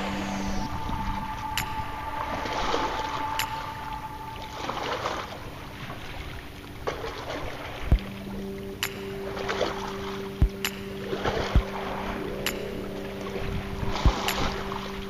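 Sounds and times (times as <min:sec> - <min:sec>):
held tone: 0:00.0 - 0:05.8
wind on microphone: 0:00.0 - 0:06.4, 0:07.8 - 0:15.0
water moving along shore: 0:00.0 - 0:15.0.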